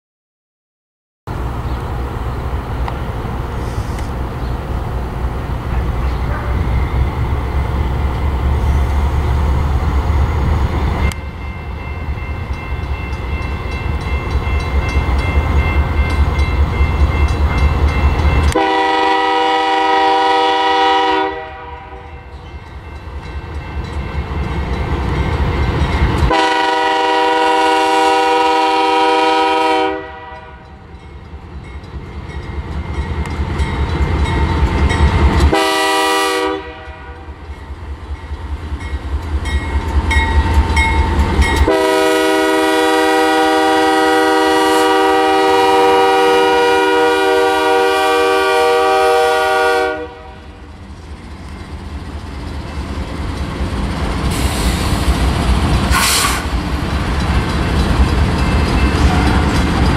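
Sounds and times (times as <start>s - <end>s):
diesel locomotives rumbling past: 1.3s - 59.9s
locomotive air horn blasts: 6.1s - 6.8s, 18.5s - 22.1s, 26.3s - 30.7s, 35.5s - 37.4s, 41.6s - 50.6s.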